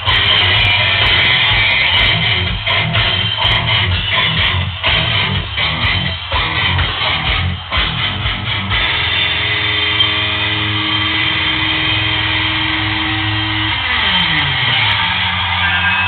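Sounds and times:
guitar playing: 0:00.0 - 0:15.0.

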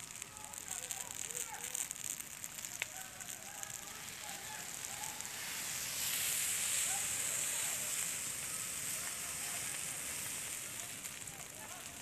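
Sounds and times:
forest fire hissing: 0:00.0 - 0:12.0
faint distant voices: 0:00.1 - 0:12.0.

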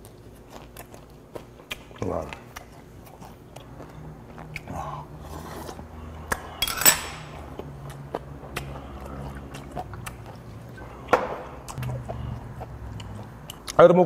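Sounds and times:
chopsticks clinking on dishes: 0:06.6 - 0:07.4.

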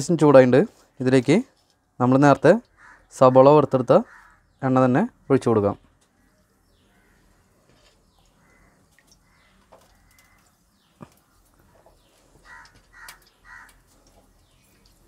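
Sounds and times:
bird calls: 0:02.6 - 0:15.0
oil pouring into clay pot: 0:07.7 - 0:15.0.

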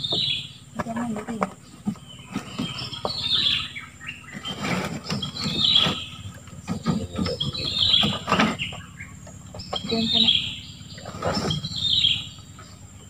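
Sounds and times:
knocks and rustling: 0:00.0 - 0:03.6, 0:04.2 - 0:10.2
bird singing descending phrase: 0:00.0 - 0:13.0.

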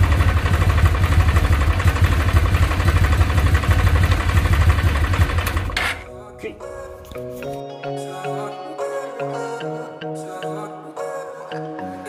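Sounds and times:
motorcycle engine idling: 0:00.0 - 0:06.1.

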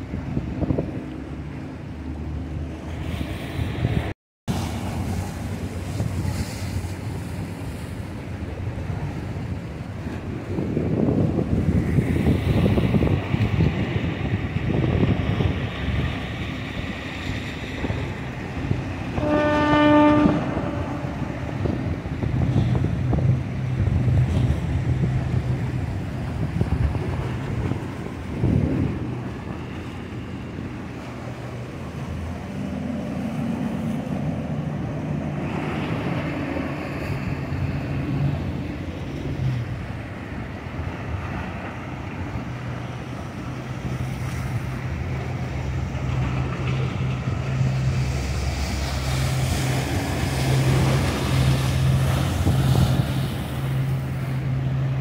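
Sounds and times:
boat engines running: 0:00.0 - 0:55.0
surf: 0:00.0 - 0:55.0
wind: 0:00.0 - 0:55.0
boat horn blast: 0:19.0 - 0:22.8.

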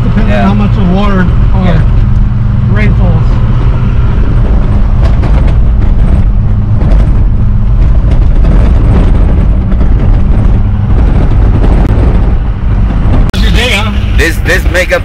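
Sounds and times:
truck engine and road rumble: 0:00.0 - 0:15.0
knocks and rattles in cab: 0:04.1 - 0:13.3.

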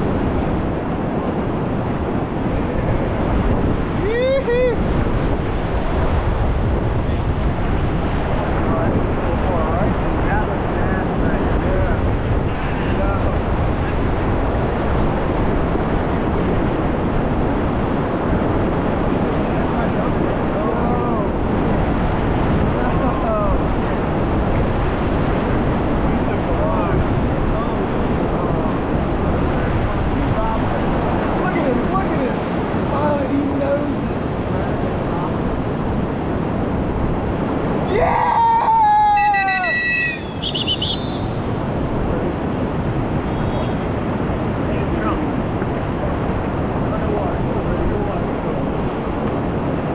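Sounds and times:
river whitewater rushing: 0:00.0 - 0:49.9
people whooping and yelling: 0:04.0 - 0:04.8, 0:37.9 - 0:40.2
short warbling cry: 0:39.0 - 0:41.4.

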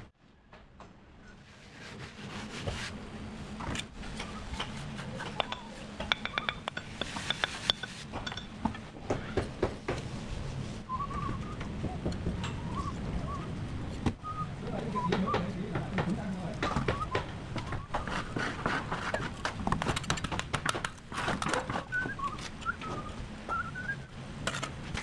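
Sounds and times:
person whistling: 0:10.9 - 0:11.6, 0:14.2 - 0:15.4, 0:21.9 - 0:24.1
bricks clicking and knocking: 0:16.0 - 0:23.0.

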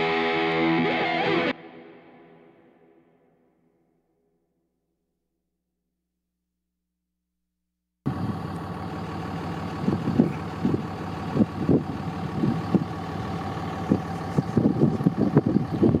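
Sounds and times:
vehicle engine running: 0:08.1 - 0:16.0
wind buffeting microphone: 0:09.8 - 0:13.0, 0:13.8 - 0:16.0.

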